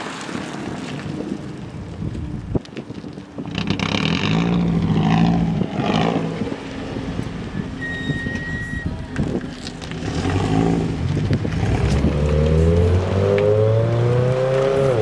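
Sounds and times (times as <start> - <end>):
car engine revving: 3.5 - 15.0.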